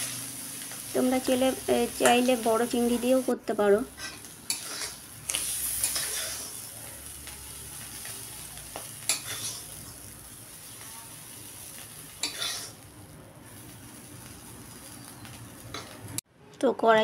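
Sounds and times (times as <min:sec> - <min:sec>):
shrimp sizzling in oil: 0:00.0 - 0:16.2
metal spatula scraping pan: 0:03.9 - 0:06.7, 0:09.0 - 0:09.8, 0:12.2 - 0:12.8.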